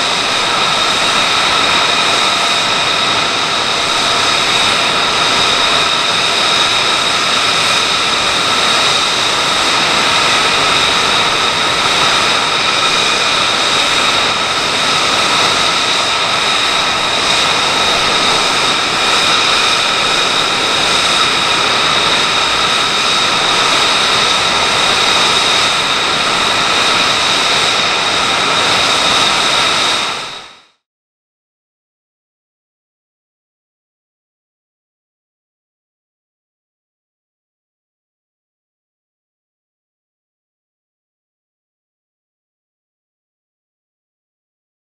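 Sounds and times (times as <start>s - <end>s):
jet engine idling with whine: 0.0s - 30.9s.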